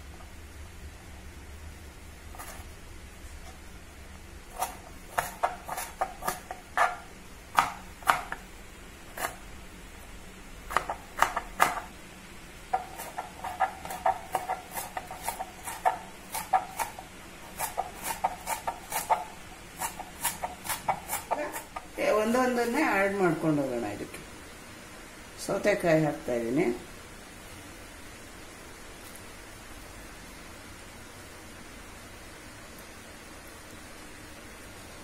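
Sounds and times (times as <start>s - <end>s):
knife chopping on cutting board: 4.5s - 8.4s, 9.1s - 9.4s, 10.7s - 11.9s, 12.7s - 21.9s.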